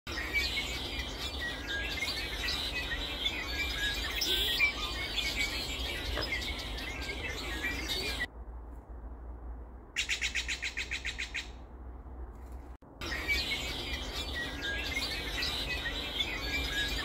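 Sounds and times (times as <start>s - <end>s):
small birds chirping: 0.1s - 8.3s, 13.0s - 17.0s
steady low rumble: 8.2s - 10.0s, 10.8s - 13.0s.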